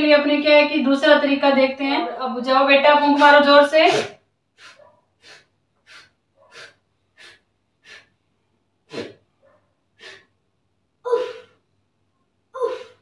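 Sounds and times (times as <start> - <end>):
child blowing puffs of breath: 3.9 - 8.2, 8.8 - 9.2, 10.0 - 10.4.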